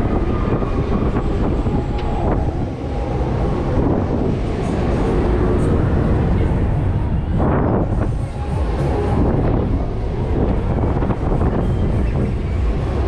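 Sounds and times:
wind rushing over microphone: 0:00.0 - 0:13.0.

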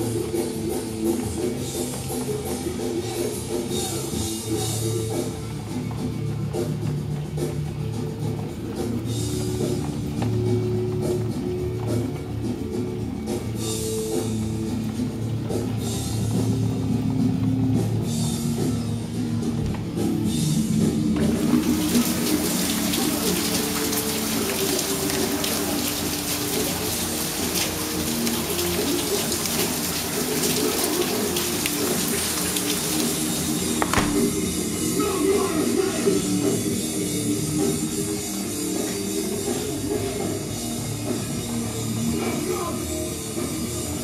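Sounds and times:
rock music: 0:00.0 - 0:22.6, 0:32.5 - 0:44.0
heavy rain hiss: 0:20.1 - 0:35.0.

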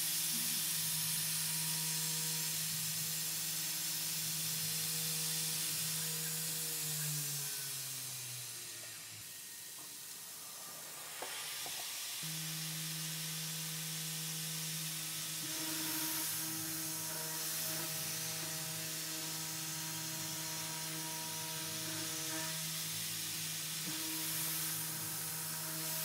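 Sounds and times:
end mill cutting aluminium: 0:00.2 - 0:26.0
coolant nozzle hissing: 0:09.0 - 0:26.0
spindle humming: 0:11.7 - 0:26.0.

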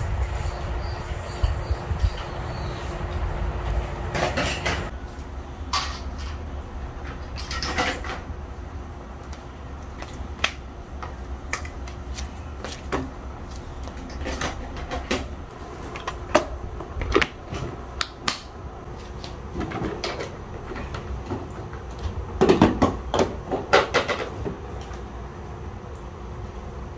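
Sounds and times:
low steady rumble: 0:00.0 - 0:10.0
footsteps in slippers on tiles: 0:11.0 - 0:14.1.

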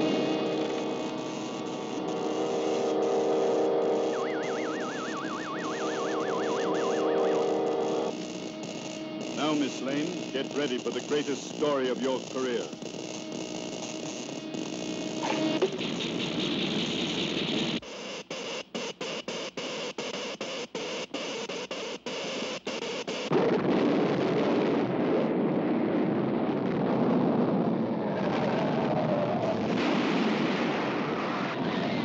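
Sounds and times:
continuous earthquake rumble: 0:00.0 - 0:05.8, 0:07.2 - 0:17.8, 0:23.3 - 0:32.0
pulsing electric buzz: 0:00.0 - 0:25.2.

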